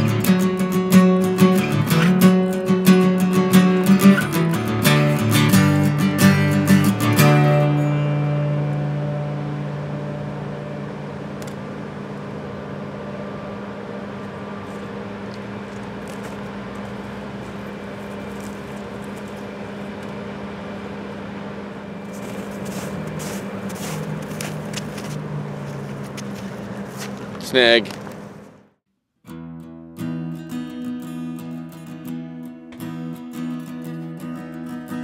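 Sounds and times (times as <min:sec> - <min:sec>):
low background hum: 0:06.2 - 0:28.8.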